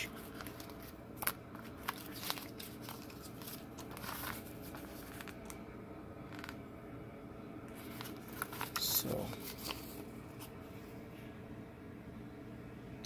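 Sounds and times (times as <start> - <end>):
paper booklet crackling: 0.0 - 5.6, 6.3 - 6.6, 7.7 - 10.6.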